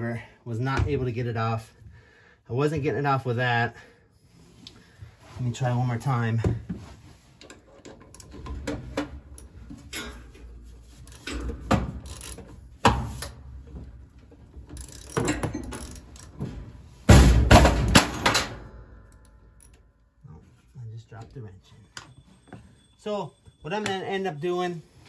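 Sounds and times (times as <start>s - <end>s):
wrench clanking on plastic wheel: 7.4s - 13.4s, 14.6s - 16.6s.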